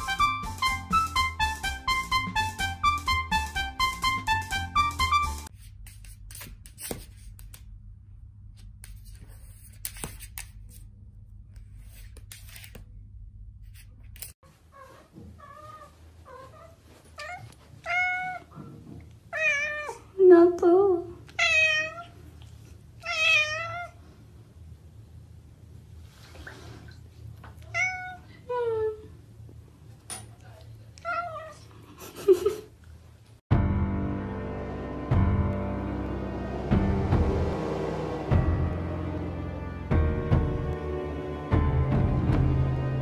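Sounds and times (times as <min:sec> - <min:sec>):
cat meowing: 0:14.8 - 0:18.5, 0:27.6 - 0:28.3
low hum: 0:33.5 - 0:43.0.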